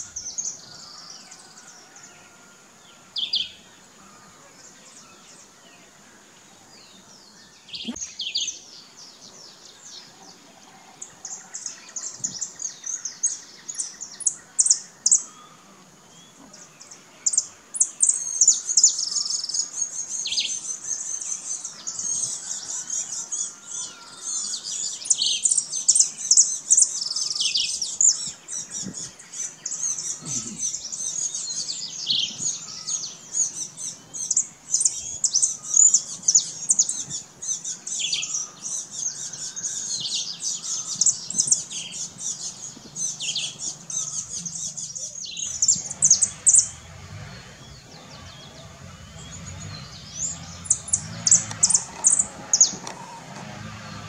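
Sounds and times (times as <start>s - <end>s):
finch chirping and twittering: 11.0s - 54.0s.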